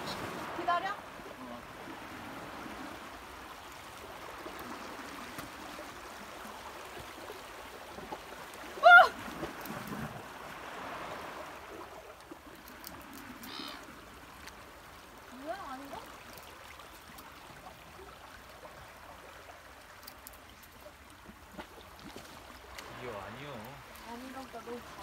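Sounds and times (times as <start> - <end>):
waves washing over rocks: 0.0 - 16.0, 22.4 - 25.0.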